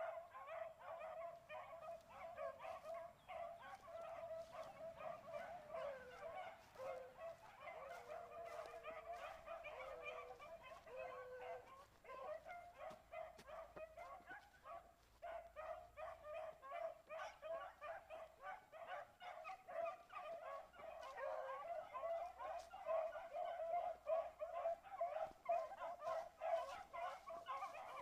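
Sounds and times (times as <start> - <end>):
hounds baying: 0.0 - 28.0.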